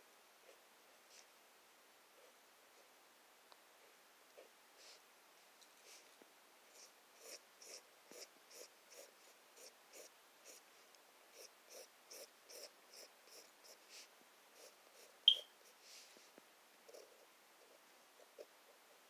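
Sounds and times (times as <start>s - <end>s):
pen scratching on paper: 6.8s - 10.6s, 11.3s - 13.9s.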